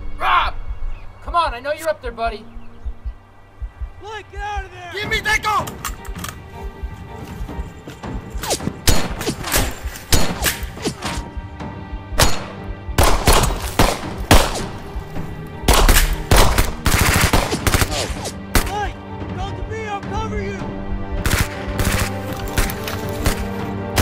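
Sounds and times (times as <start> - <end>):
music score: 2.2 - 24.0
rifle shots: 8.4 - 11.1, 12.2 - 14.8, 15.7 - 18.7, 21.2 - 24.0.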